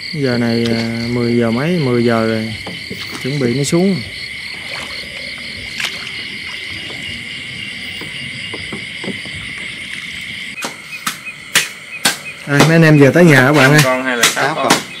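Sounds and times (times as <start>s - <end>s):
crickets and insects trilling: 0.0s - 15.0s
faint knocks: 7.8s - 10.0s.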